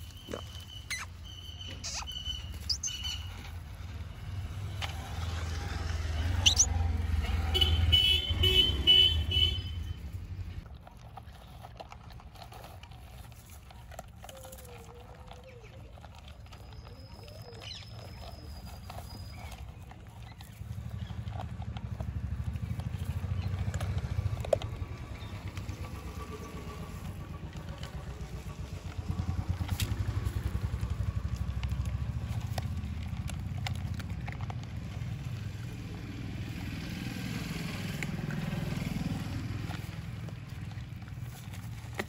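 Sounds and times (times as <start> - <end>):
birds chirping: 0.0 - 3.6, 6.0 - 6.9, 16.5 - 21.4
puppies crunching kibble: 0.0 - 42.0.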